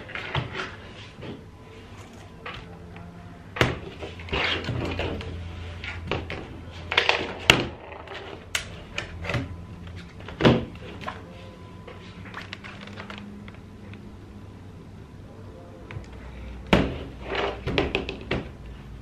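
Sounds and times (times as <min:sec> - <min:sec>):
low steady hum: 0:00.0 - 0:19.0
rubbing and scraping: 0:03.9 - 0:06.0.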